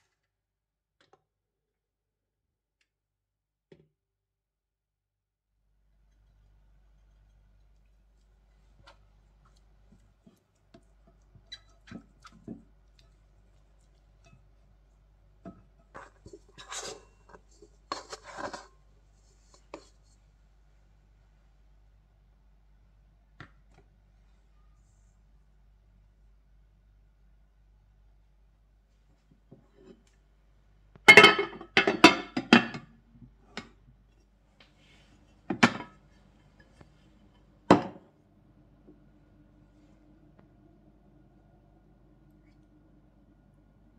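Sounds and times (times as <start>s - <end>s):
dough scraping rustles: 15.8s - 20.2s
bowl and glass dish clinking: 31.1s - 32.9s.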